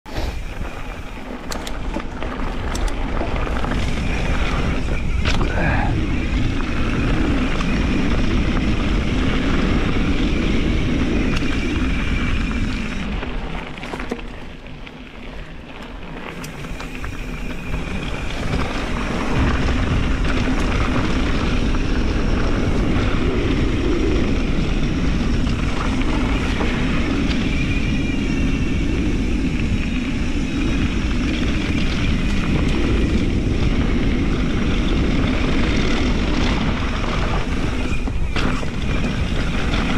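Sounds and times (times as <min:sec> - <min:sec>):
wind rushing over microphone: 0:00.1 - 0:13.6, 0:16.4 - 0:39.9
tyres crunching over dirt: 0:00.1 - 0:27.8
bike rattling: 0:00.1 - 0:39.9.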